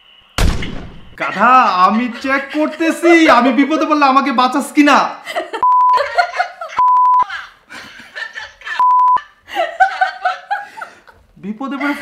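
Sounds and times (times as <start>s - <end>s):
man and woman laughing: 1.2s - 4.3s, 5.2s - 12.0s
loud electronic beeps: 5.6s - 6.0s, 6.8s - 7.2s, 8.8s - 9.2s.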